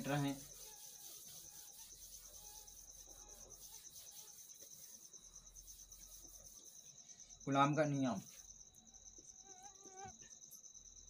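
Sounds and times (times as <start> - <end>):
hand rubbing whiteboard: 0.0 - 7.2.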